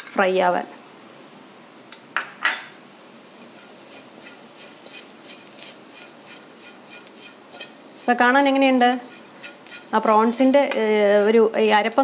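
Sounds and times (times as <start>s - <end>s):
metal spatula scraping a wok: 3.4s - 12.0s.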